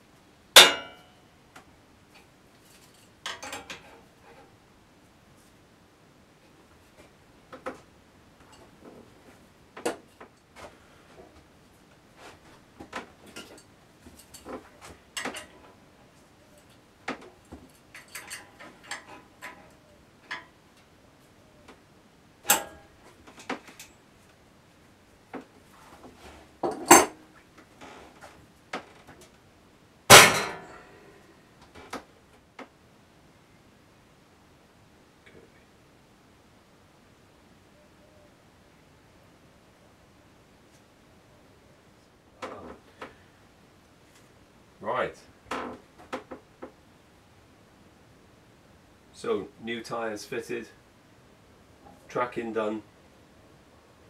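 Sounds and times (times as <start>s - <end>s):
spanner clinking on metal: 0.6s - 1.0s, 17.8s - 19.6s, 22.5s - 22.8s.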